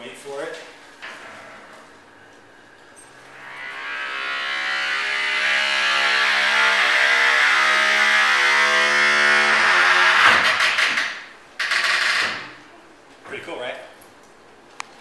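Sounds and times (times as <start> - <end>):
door hinge groaning: 1.0 - 12.7.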